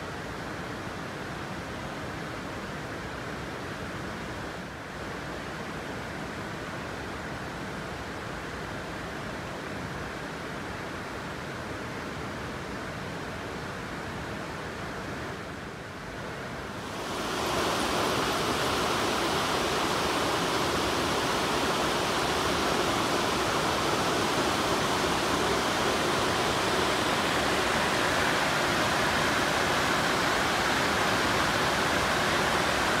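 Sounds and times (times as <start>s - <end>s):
water rushing over a weir: 16.4s - 33.0s.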